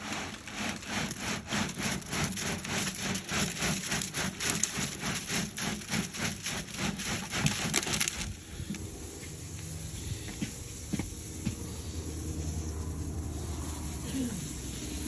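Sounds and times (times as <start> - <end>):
concrete churning in mixer drum: 0.0 - 8.8
low motor hum: 8.3 - 15.0.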